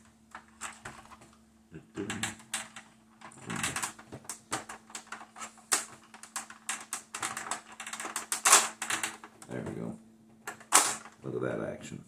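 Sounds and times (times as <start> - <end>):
plastic toy clicking and knocking: 2.0 - 9.5, 10.4 - 11.2.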